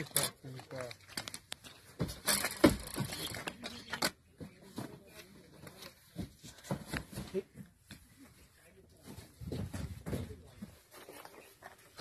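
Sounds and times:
cardboard boxes knocking and thumping: 0:06.0 - 0:07.9, 0:09.0 - 0:10.8.

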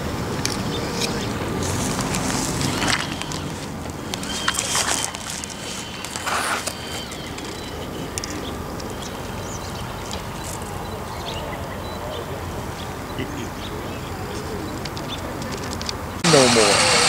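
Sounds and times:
reeds rustling: 0:00.3 - 0:10.8.

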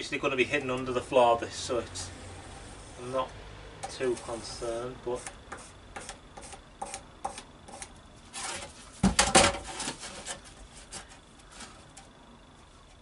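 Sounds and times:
timber and handsaw clattering: 0:05.2 - 0:11.8
wood knocks and scrapes: 0:05.2 - 0:12.1.

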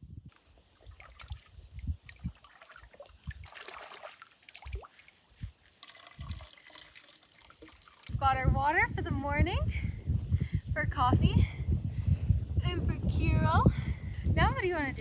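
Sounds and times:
water drips and splashes: 0:00.3 - 0:08.2
water trickling into a bottle: 0:00.8 - 0:08.3.

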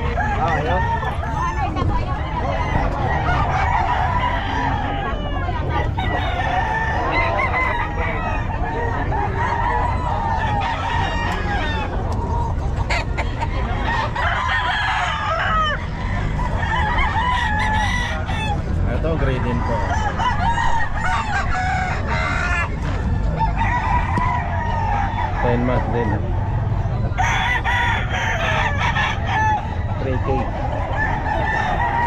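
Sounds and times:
chickens clucking: 0:00.0 - 0:32.0
roosters crowing: 0:00.0 - 0:32.0.

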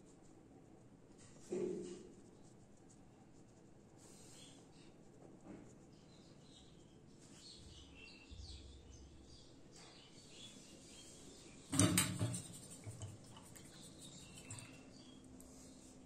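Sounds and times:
brush scratching on paper: 0:00.0 - 0:06.9, 0:12.2 - 0:14.8
knock and rustle: 0:11.7 - 0:13.1.

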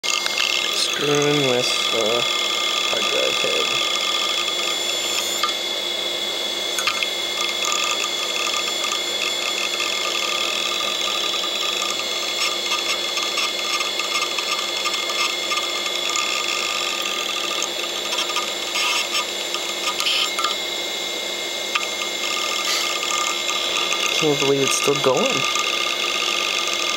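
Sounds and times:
hard drive high whine: 0:00.0 - 0:26.9
hard drive head clicking: 0:06.8 - 0:20.6, 0:21.7 - 0:26.9.

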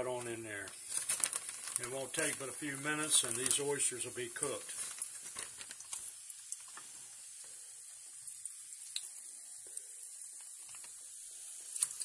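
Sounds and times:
food frying in hot oil: 0:00.0 - 0:12.0.

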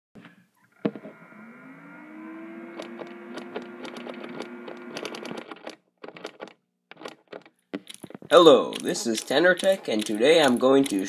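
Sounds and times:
small fan whirring: 0:00.7 - 0:05.5.

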